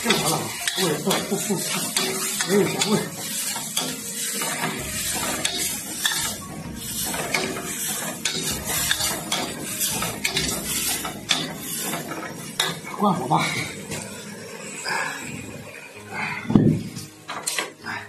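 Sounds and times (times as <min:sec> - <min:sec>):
metal spatula scraping a wok: 0:00.0 - 0:12.9
frying sizzle: 0:00.0 - 0:16.0.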